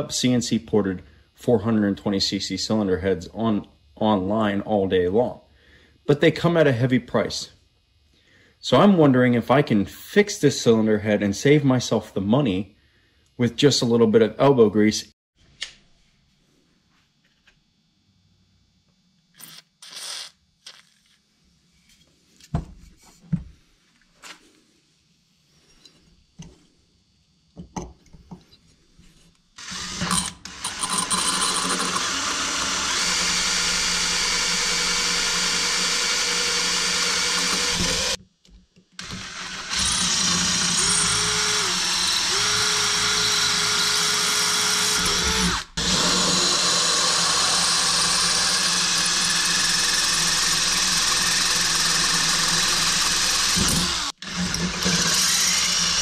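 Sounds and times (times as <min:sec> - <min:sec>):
electric drill boring into metal: 0:29.6 - 0:38.2, 0:39.0 - 0:56.0.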